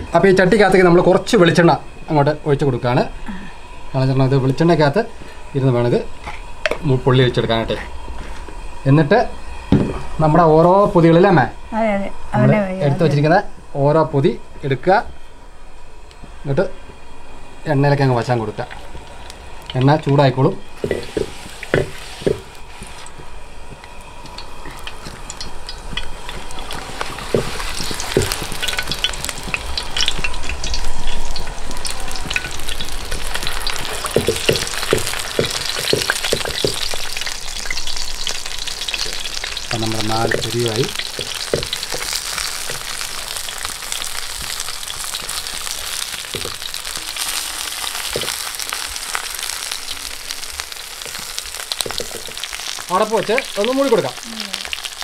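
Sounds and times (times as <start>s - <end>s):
food sizzling in oil: 0.0s - 55.0s
oil crackling and popping: 20.8s - 55.0s.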